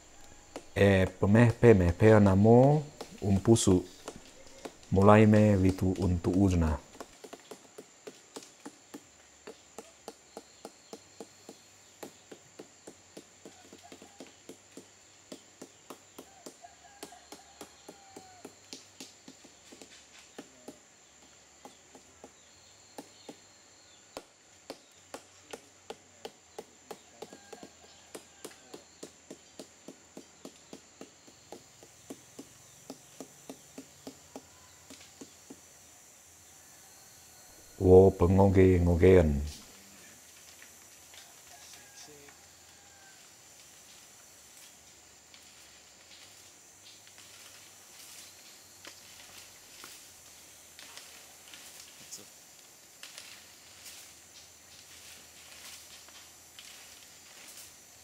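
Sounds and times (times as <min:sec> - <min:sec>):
wooden mallet beating stalk: 0:00.0 - 0:23.5, 0:24.1 - 0:35.8
high insect drone: 0:00.0 - 0:58.0.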